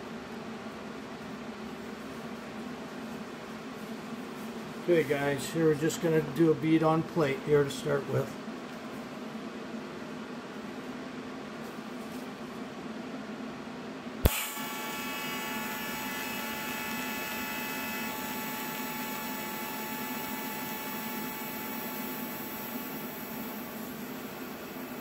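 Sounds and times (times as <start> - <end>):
welding arc striking crack: 14.2 - 15.4
welding arc hissing and buzzing: 14.2 - 25.0.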